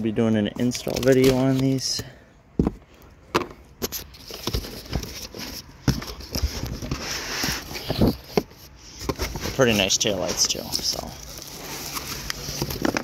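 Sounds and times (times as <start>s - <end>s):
bubble wrap rustling: 9.3s - 13.0s.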